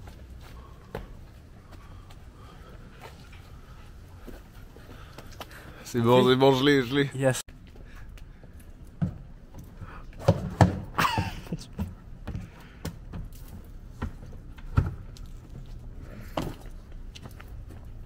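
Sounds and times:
shoes thumping on wooden planks: 10.2 - 15.6.

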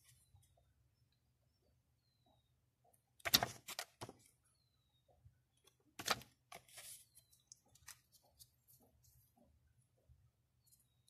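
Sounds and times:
paper rustle: 3.3 - 4.1, 6.0 - 7.2.

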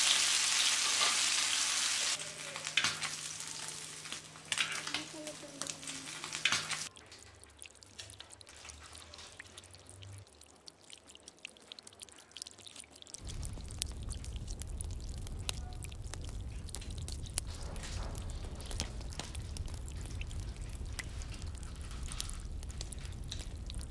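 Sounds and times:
frying sizzle: 0.0 - 23.9
low hum: 13.2 - 23.9.

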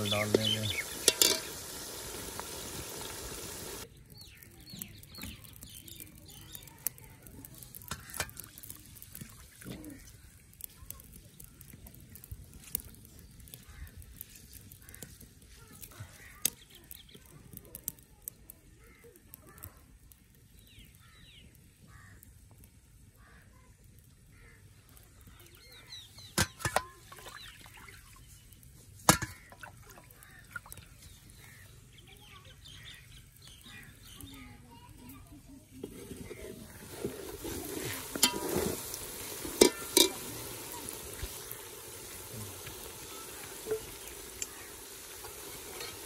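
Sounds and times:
birds calling: 0.0 - 6.8, 24.3 - 35.2, 35.8 - 46.0
hands washing rice in water: 35.8 - 46.0.

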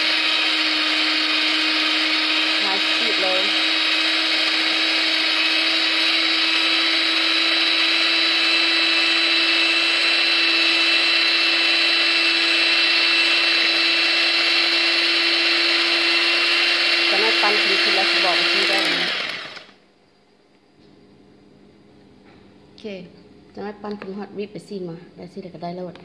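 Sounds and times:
electric hand mixer whirring: 0.0 - 19.8.

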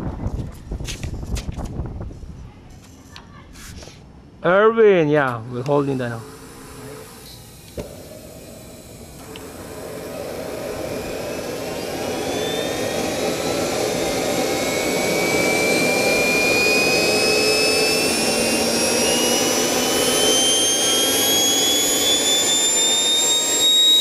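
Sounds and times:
jet turbine whine spooling up: 5.4 - 24.0.

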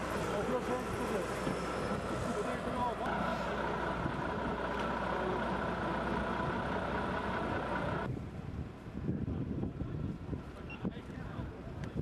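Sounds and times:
heavy vehicle engine idling: 0.0 - 8.1.

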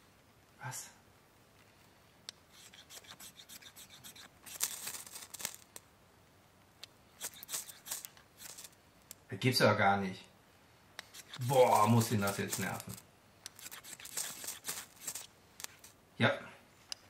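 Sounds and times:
knife scraping ferrocerium rod: 2.5 - 5.6, 7.2 - 8.8, 11.0 - 15.9.

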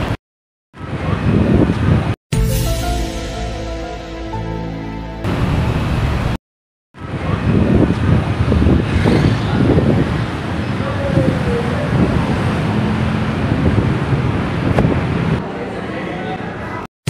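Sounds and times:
traffic noise: 5.2 - 6.4, 7.0 - 16.9
wind on microphone: 7.0 - 15.4.

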